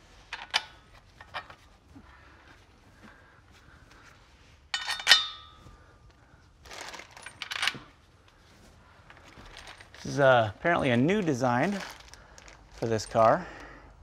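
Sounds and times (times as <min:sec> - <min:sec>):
metal bolt clinking: 0:00.3 - 0:01.6, 0:04.7 - 0:05.6, 0:06.8 - 0:08.0.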